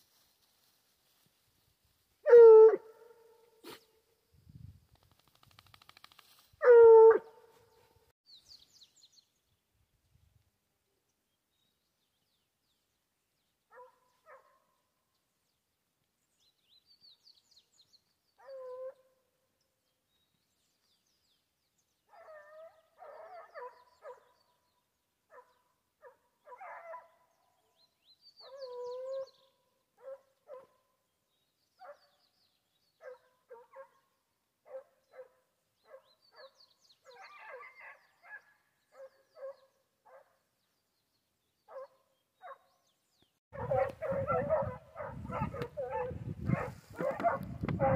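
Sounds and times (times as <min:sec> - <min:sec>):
hounds barking: 0:02.2 - 0:03.8, 0:13.7 - 0:14.6, 0:22.1 - 0:24.3, 0:25.3 - 0:27.2, 0:30.0 - 0:30.8, 0:33.0 - 0:34.0, 0:34.7 - 0:40.3, 0:41.7 - 0:42.6, 0:43.6 - 0:47.9
distant hounds baying: 0:43.6 - 0:47.9.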